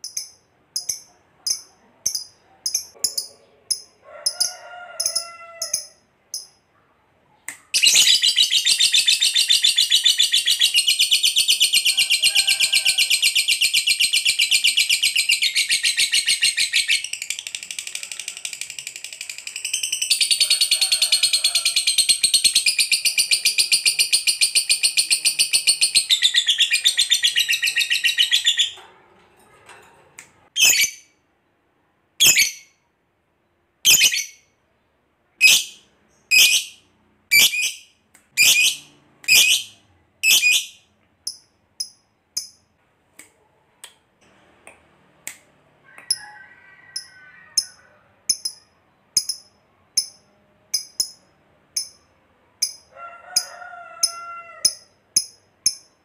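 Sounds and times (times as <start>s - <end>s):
high bird chirps: 7.8s - 12.3s, 13.2s - 17.9s, 21.8s - 28.8s, 30.6s - 31.2s, 32.2s - 32.8s, 33.9s - 34.5s, 35.4s - 42.6s.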